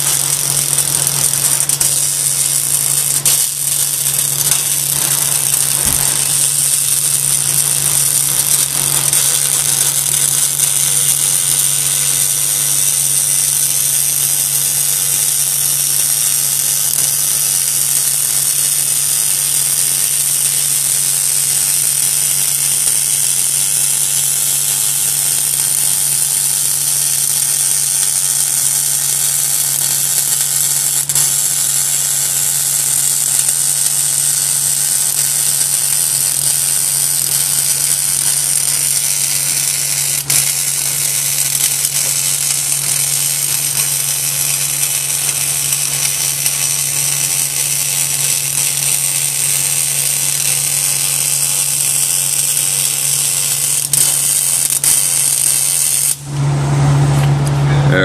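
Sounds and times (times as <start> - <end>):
steady low hum: 0.0 - 58.0
welding arc crackling and buzzing: 0.0 - 58.0.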